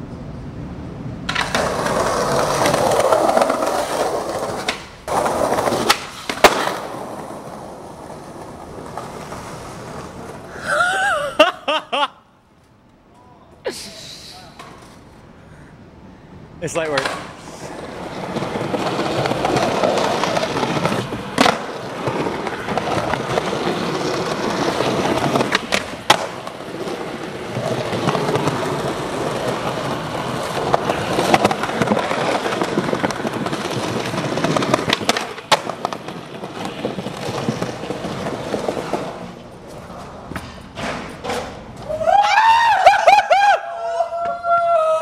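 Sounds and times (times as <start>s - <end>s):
skateboard wheels rolling on paving: 0.0s - 11.6s, 16.6s - 44.4s
skateboard clacking on ground: 1.3s - 10.5s, 16.9s - 41.9s.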